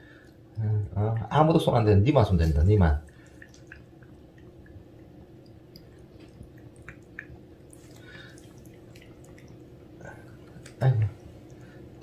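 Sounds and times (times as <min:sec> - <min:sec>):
faint steady hum: 0:00.0 - 0:12.0
cat licking wet clicks: 0:03.1 - 0:11.9.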